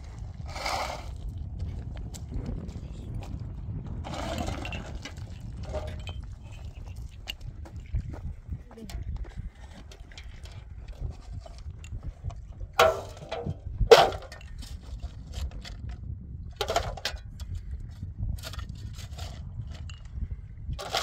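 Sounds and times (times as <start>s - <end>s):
low wind rumble: 0.0s - 21.0s
stones clanking into metal basin: 4.0s - 7.4s, 12.8s - 15.8s, 16.6s - 17.3s, 20.8s - 21.0s.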